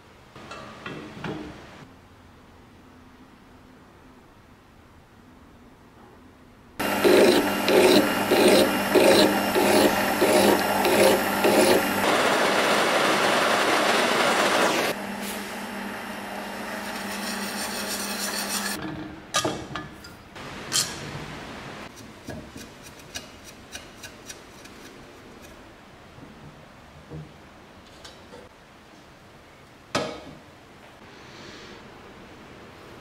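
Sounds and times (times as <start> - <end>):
rhythmic scraping strokes: 6.8 - 12.0, 16.9 - 18.8.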